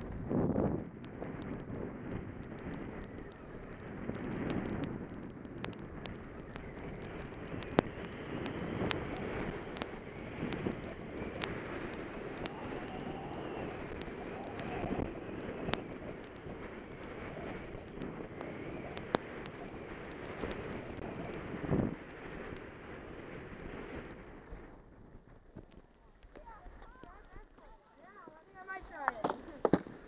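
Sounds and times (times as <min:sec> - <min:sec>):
sharp clicks: 0:00.0 - 0:22.9
wind rushing over microphone: 0:00.0 - 0:27.6
skis scraping over snow: 0:00.0 - 0:30.0.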